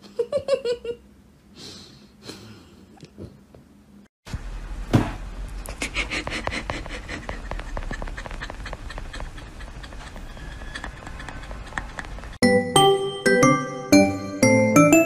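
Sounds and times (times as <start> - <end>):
knock on crate: 4.9 - 5.2
puppy squeaking and panting: 6.6 - 12.4.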